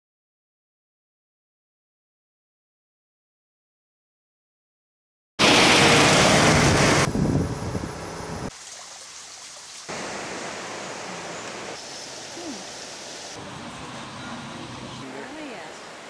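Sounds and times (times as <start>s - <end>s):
outdoor rushing hiss: 5.4s - 16.0s.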